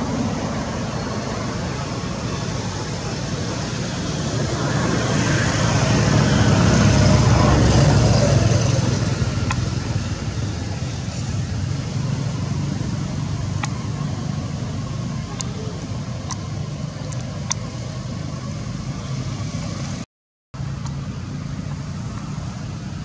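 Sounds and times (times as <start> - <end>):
vehicle passing by: 0.0 - 17.1
road noise: 0.0 - 23.0.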